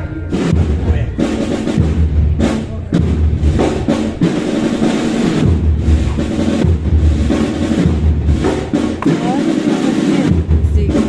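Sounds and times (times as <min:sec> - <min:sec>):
bass drum strokes: 0:00.0 - 0:11.0
snare drum rolls: 0:00.3 - 0:11.0.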